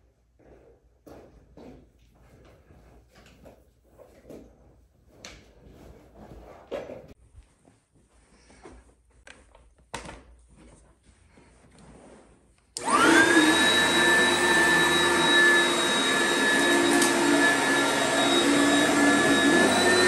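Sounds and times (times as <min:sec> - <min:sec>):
upright vacuum cleaner running: 0:12.8 - 0:20.0.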